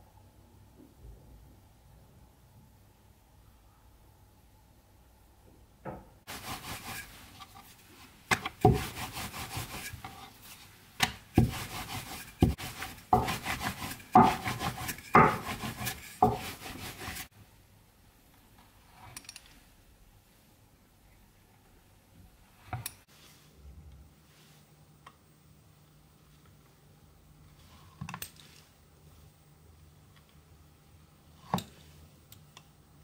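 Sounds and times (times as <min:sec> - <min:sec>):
rolling pin rolling dough on board: 0:06.3 - 0:17.3.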